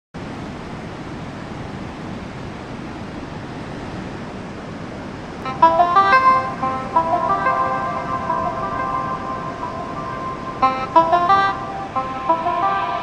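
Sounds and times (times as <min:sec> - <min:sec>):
steady rushing noise: 0:05.3 - 0:13.0
bright synth melody: 0:05.4 - 0:13.0.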